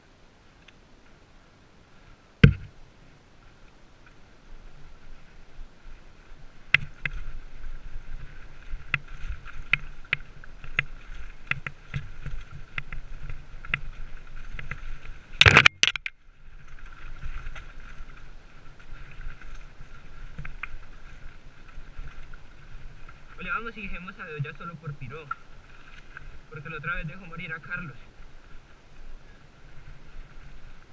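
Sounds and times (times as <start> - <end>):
wheels knocking on stones: 2.4 - 2.8
mountain bike rattling over rocks: 6.7 - 28.0.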